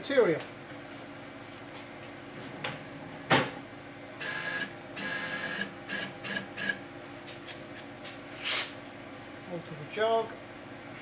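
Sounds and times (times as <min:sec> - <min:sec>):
stepper motor whining: 0:04.2 - 0:06.8.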